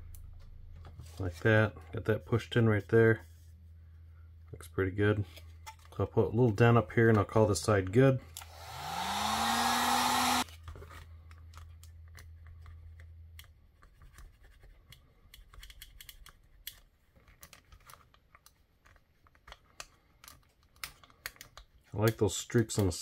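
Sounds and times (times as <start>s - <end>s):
electric heat gun blowing: 8.4s - 10.5s.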